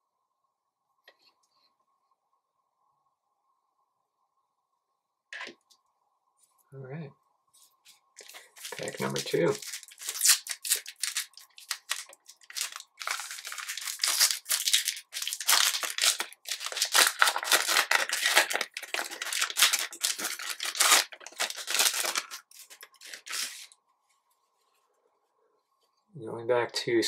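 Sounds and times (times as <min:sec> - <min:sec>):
foil wrapper tearing and crinkling: 0:08.2 - 0:23.8.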